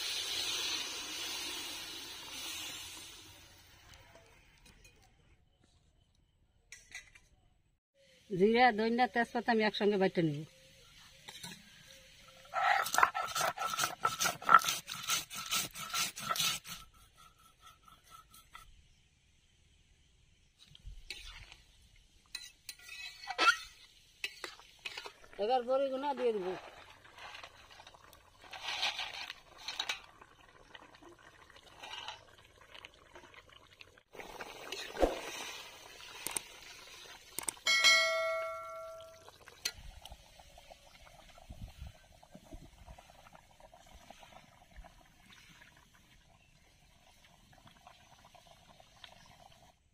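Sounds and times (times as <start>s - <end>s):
stone scraping on stone: 12.6s - 18.7s
curry bubbling: 24.2s - 37.6s, 38.6s - 49.9s.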